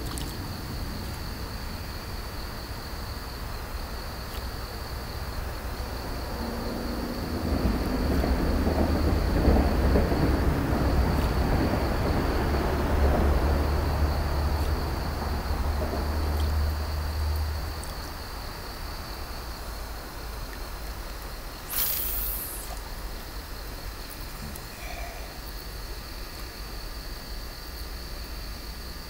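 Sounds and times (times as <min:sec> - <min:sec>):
night insects droning: 0:00.0 - 0:29.0
low rumble: 0:05.8 - 0:16.4.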